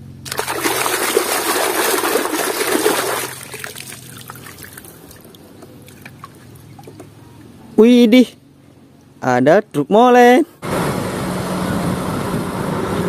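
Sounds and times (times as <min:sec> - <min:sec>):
water sloshing in plastic basin: 0:00.2 - 0:07.2.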